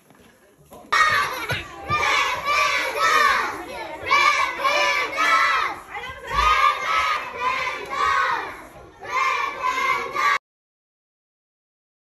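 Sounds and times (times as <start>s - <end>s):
children shouting a chant: 0.9s - 10.4s.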